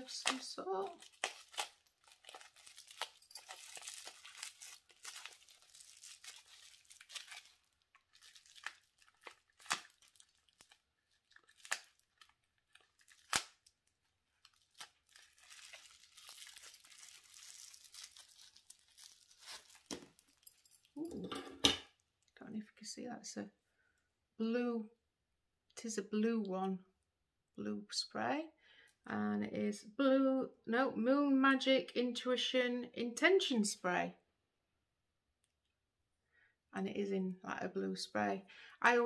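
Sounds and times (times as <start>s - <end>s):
plastic wrapping crinkling: 0.0s - 21.0s.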